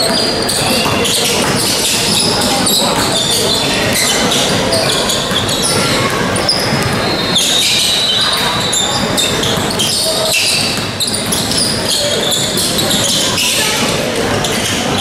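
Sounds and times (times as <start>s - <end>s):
basketball dribbling on hardwood: 0.0s - 7.4s
echoing voices: 0.0s - 15.0s
sneakers squeaking: 0.0s - 15.0s.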